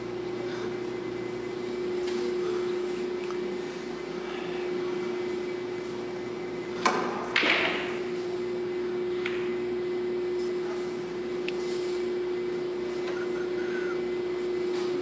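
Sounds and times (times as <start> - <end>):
low hum: 0.0 - 15.0
pool balls colliding: 6.8 - 8.1.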